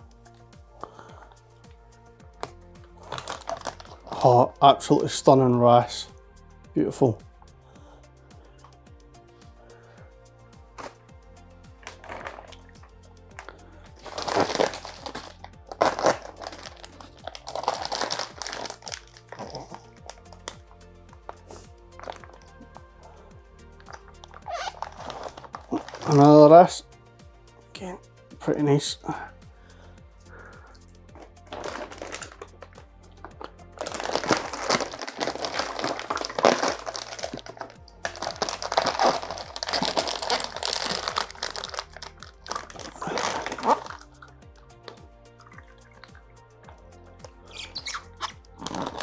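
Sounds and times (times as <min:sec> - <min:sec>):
plastic bag crinkling: 0:03.0 - 0:04.5, 0:11.8 - 0:12.7, 0:14.0 - 0:20.6, 0:23.9 - 0:26.4, 0:31.2 - 0:44.2, 0:47.5 - 0:49.0.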